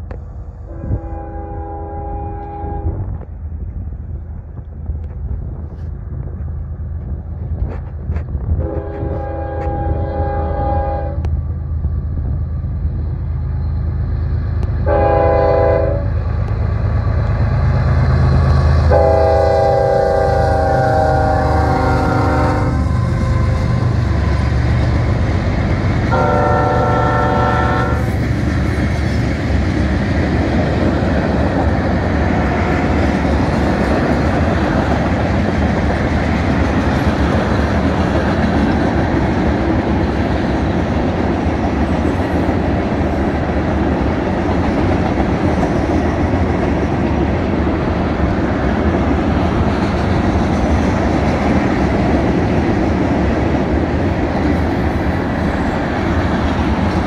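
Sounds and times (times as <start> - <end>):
locomotive engine drone: 0.0 - 57.0
train cars rumbling and clacking: 0.0 - 57.0
train horn blast: 0.7 - 3.1, 8.6 - 11.3, 14.8 - 16.2, 18.8 - 24.0, 26.1 - 28.1.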